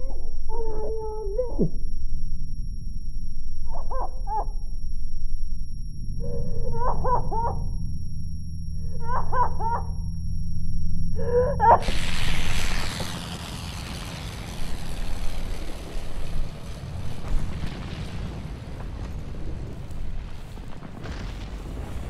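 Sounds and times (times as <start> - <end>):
low rumble: 0.0 - 22.0
woman wailing: 6.2 - 7.8, 8.8 - 10.0, 11.2 - 11.9
loud explosion: 11.8 - 22.0.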